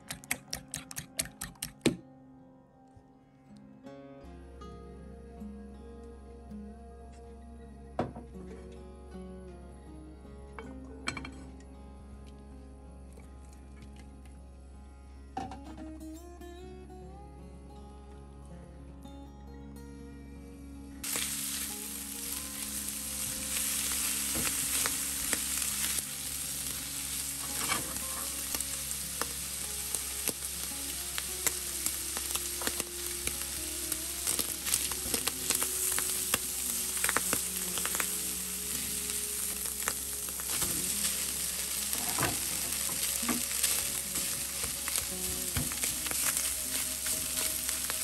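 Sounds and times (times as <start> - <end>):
seafood sizzling in oil: 21.0 - 48.0.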